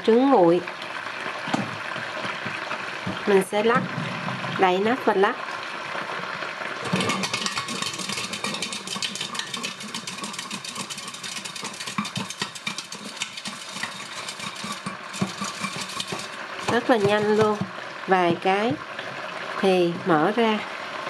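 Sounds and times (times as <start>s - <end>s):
eggs rattling in a shaken pot: 6.8s - 18.8s.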